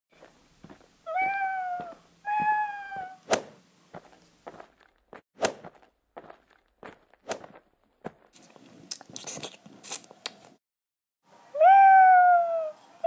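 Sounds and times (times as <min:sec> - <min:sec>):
cat meowing: 0:01.1 - 0:03.2, 0:11.5 - 0:12.8.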